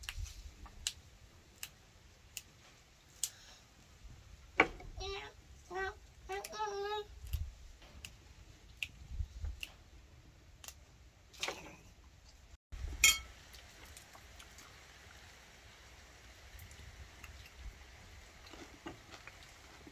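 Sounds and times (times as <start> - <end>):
greens picked over steel bowl: 13.0 - 13.3.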